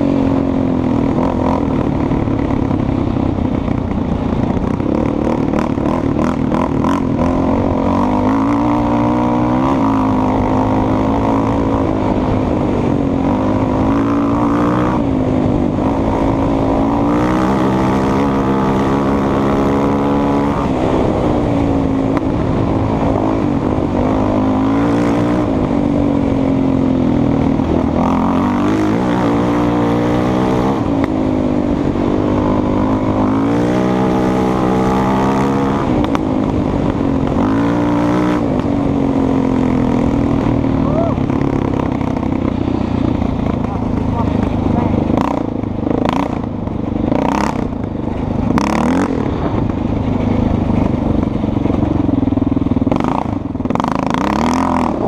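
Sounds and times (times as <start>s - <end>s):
quad engine revving: 0.0s - 55.0s.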